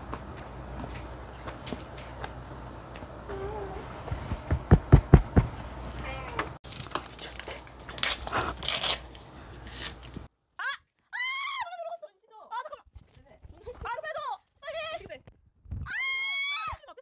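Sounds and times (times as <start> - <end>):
heavy thumps: 4.0 - 6.6.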